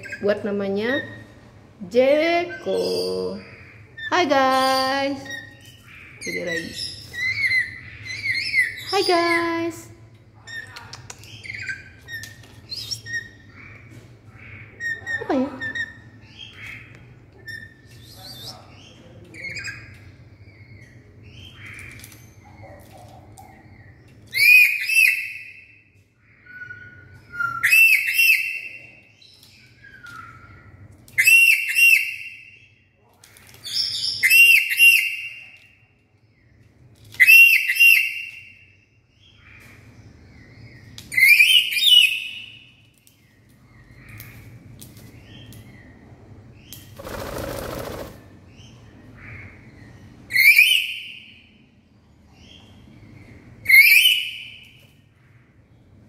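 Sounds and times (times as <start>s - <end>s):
wing flapping: 47.0s - 48.3s.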